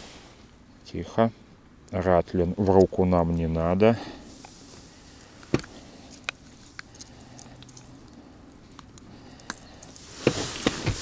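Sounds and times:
rustling: 4.0 - 11.0
clicks and rattles of fishing lure: 5.6 - 10.0.

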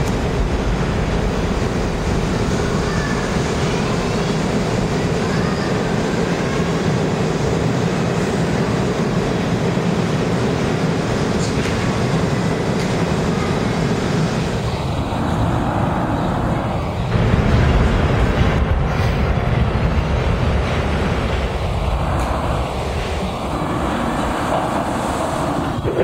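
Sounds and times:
subway train rumbling past: 0.0 - 26.0.

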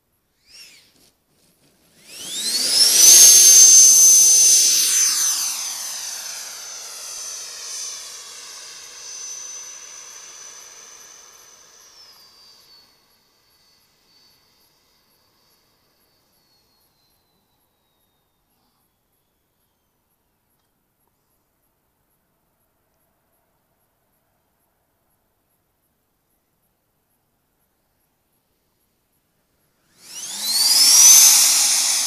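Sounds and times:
model jet whine passing: 0.4 - 1.0, 1.8 - 17.1, 29.9 - 32.0.

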